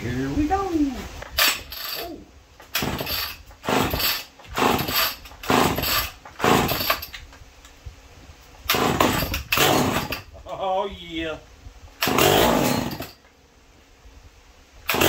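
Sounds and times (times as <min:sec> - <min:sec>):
chainsaw starter rope pulls: 0:01.3 - 0:07.2, 0:08.7 - 0:10.3, 0:12.0 - 0:13.2
engine turning over: 0:02.7 - 0:07.1, 0:08.7 - 0:10.2, 0:12.0 - 0:13.2.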